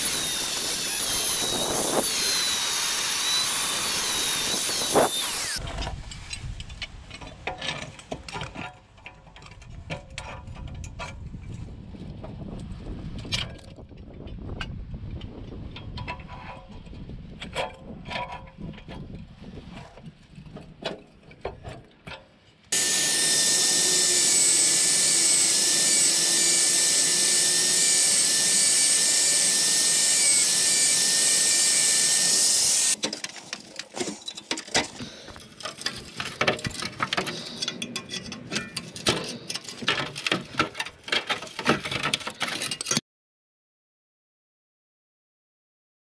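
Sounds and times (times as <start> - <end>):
angle grinder cutting metal pipe: 0.0 - 5.6, 22.7 - 33.0.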